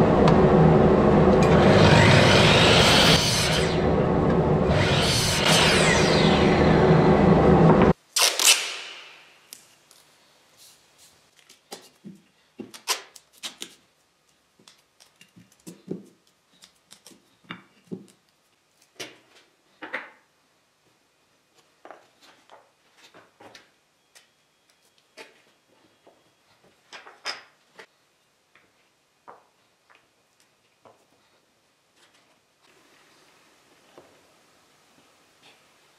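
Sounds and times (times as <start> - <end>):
loud burst of noise: 0.0 - 8.0.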